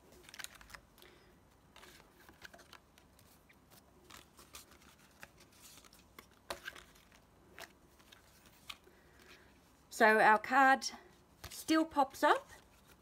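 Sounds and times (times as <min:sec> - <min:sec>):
paper card rustling: 0:00.0 - 0:09.7.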